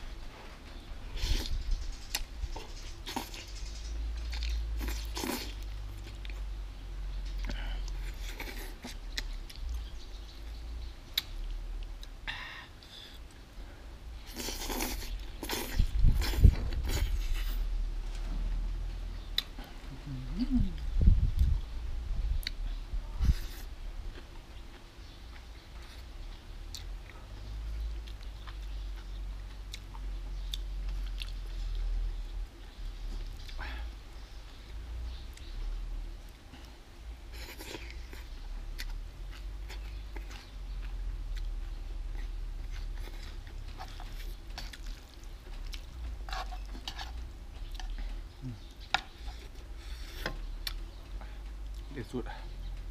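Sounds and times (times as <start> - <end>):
steady low hum: 0.0 - 52.9
person chewing noodles: 1.2 - 3.6, 4.2 - 6.5, 7.4 - 10.0, 14.2 - 17.7, 23.4 - 33.9, 36.3 - 51.9.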